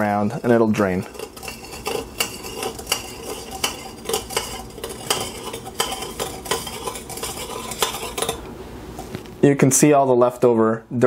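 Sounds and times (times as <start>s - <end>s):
metal spoon clinking in funnel: 1.1s - 8.4s.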